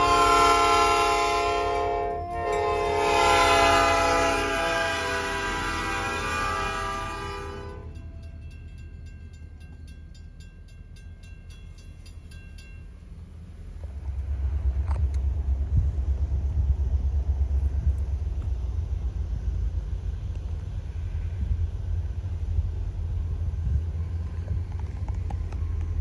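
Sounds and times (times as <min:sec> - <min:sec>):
railroad crossing bell ringing: 0:00.0 - 0:04.4, 0:06.2 - 0:13.7
car engine and road rumble: 0:03.8 - 0:26.0
faint low rumble: 0:07.6 - 0:26.0.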